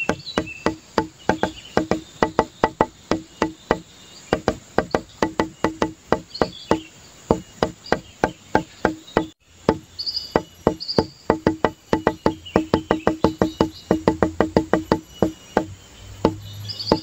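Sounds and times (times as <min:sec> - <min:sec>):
percussive instrumental music: 0:10.4 - 0:17.0.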